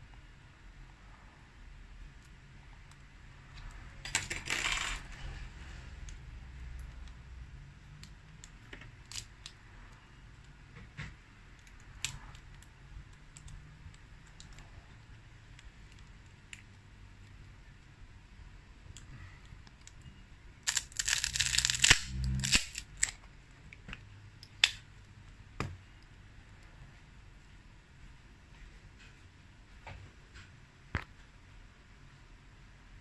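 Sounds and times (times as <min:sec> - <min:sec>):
battery adhesive crackling: 0:20.6 - 0:23.2.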